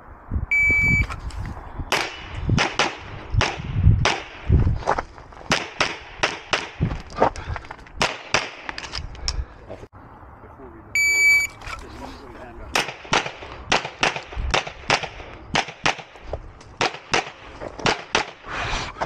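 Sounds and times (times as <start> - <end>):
shot timer beep: 0.5 - 1.1, 11.0 - 11.5
pistol shots: 12.7 - 16.1, 16.8 - 18.4.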